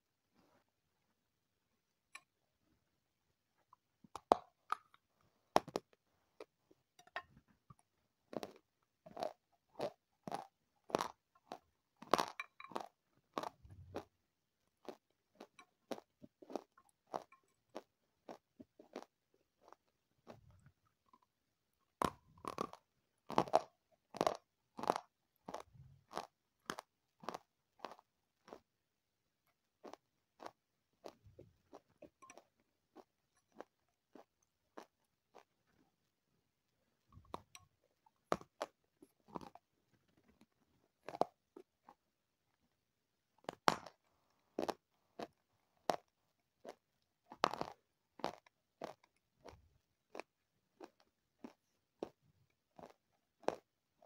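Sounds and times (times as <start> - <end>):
crunching crisp food: 8.3 - 14.2, 22.0 - 28.7, 29.8 - 35.8, 43.4 - 53.7.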